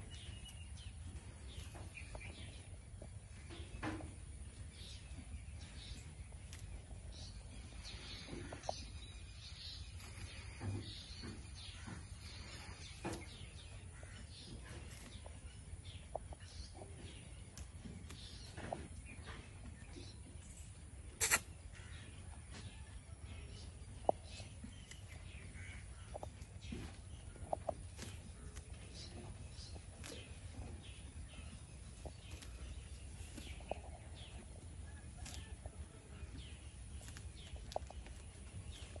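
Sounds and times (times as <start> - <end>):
birds chirping: 0.0 - 39.0
goats chewing fodder: 0.0 - 39.0
poultry calling: 21.1 - 22.1.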